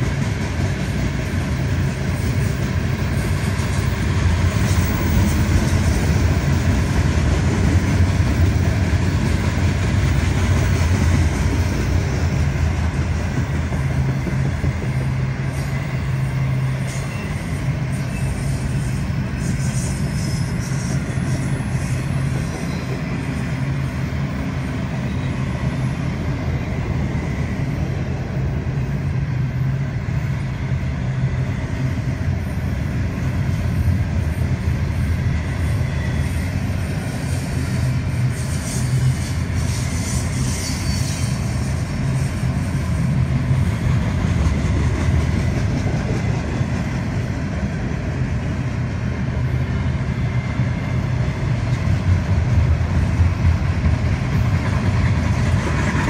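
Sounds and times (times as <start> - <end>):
freight train cars rumbling: 0.0 - 56.0.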